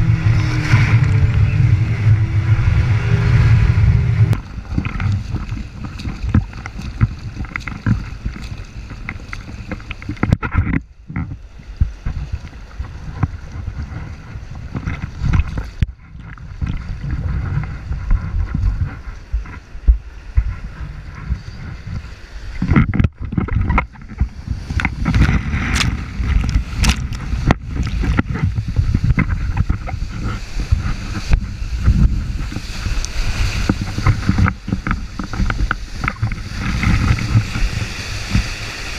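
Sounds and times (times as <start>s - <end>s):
river whitewater churning: 0.0s - 10.0s
wind buffeting microphone: 0.0s - 38.9s.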